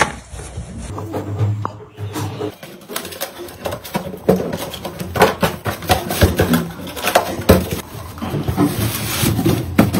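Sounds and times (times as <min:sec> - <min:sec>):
cardboard boxes being handled: 0:02.6 - 0:09.9.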